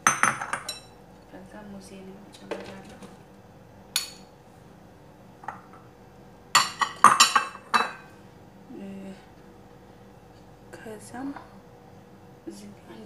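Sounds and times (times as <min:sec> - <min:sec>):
kitchenware clinking: 0:00.0 - 0:01.0, 0:06.6 - 0:08.0.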